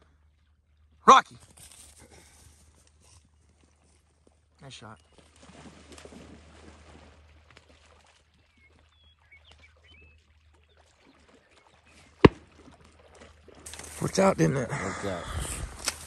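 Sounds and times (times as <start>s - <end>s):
dog splashing in water: 5.1s - 14.2s
sharp crack: 12.2s - 12.4s.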